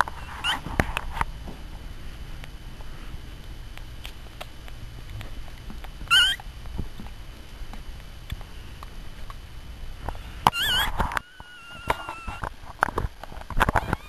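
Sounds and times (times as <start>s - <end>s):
puppies rustling on blanket: 0.0s - 14.0s
puppy squealing: 0.2s - 0.7s, 6.1s - 6.4s, 10.2s - 12.5s, 13.7s - 14.0s.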